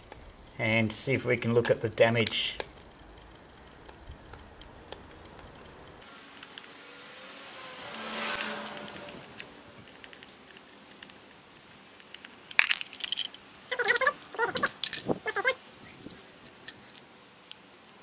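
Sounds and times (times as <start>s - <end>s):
rushing noise: 5.5s - 10.3s
plastic squeaky creaking: 13.7s - 16.2s.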